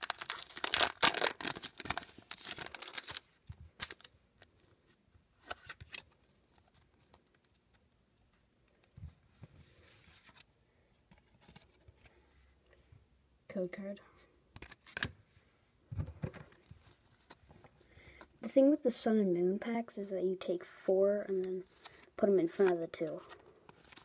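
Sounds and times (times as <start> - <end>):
foil wrapper tearing and crinkling: 0.0 - 4.1
cards rustling: 0.0 - 4.7, 21.4 - 24.0.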